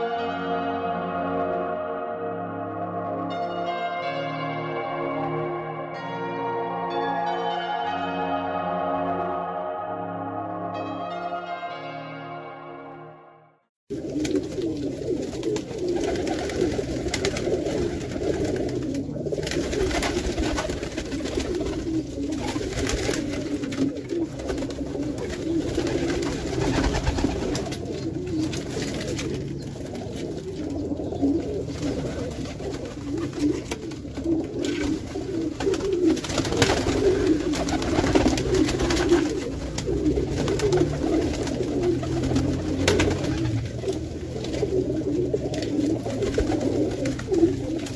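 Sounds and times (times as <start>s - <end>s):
pigeons cooing: 13.9s - 47.9s.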